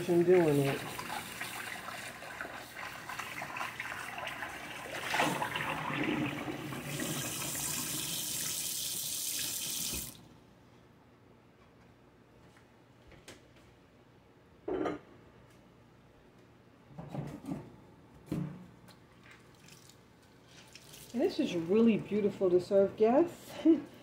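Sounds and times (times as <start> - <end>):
water splashing on dish: 0.0 - 5.8.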